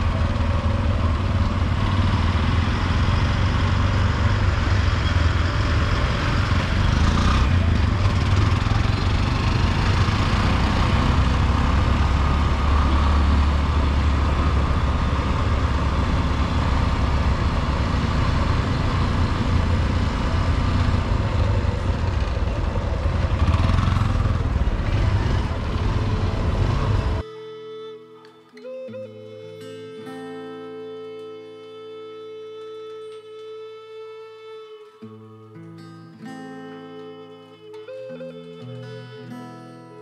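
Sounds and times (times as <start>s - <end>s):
motorcycle engine running: 0.0s - 27.2s
small engine traffic: 0.0s - 27.4s.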